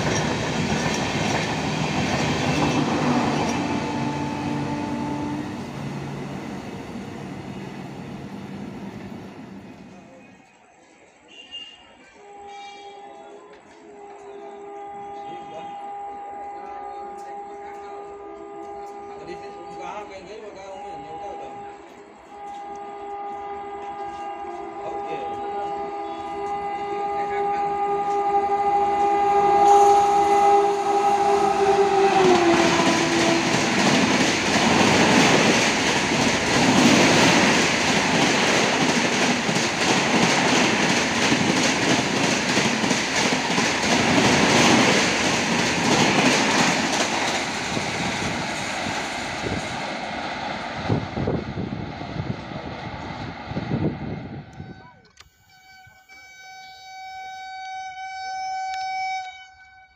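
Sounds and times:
train coaches rushing past: 0:00.0 - 0:57.1
train horn blast: 0:01.7 - 0:08.3, 0:11.3 - 0:37.9, 0:53.8 - 0:59.9.

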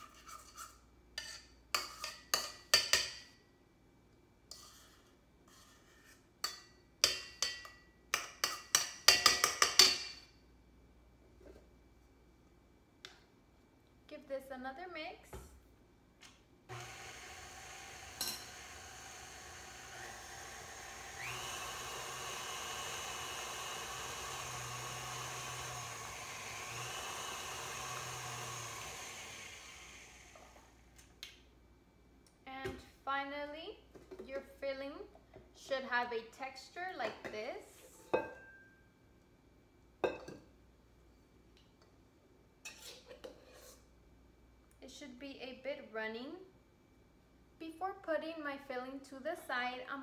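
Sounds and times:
spoon scraping metal bowl: 0:00.0 - 0:02.5, 0:04.5 - 0:06.6
stand mixer motor humming: 0:16.7 - 0:30.7.

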